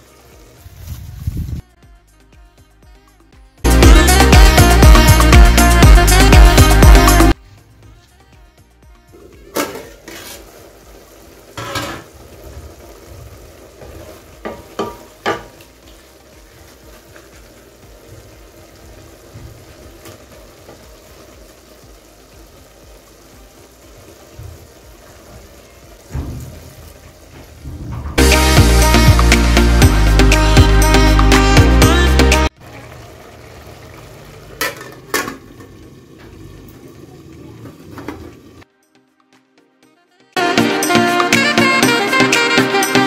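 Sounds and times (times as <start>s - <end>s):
low steady sizzle: 0.0s - 1.8s, 9.1s - 31.2s, 32.5s - 38.7s
utensil knocking against pot: 14.4s - 15.5s.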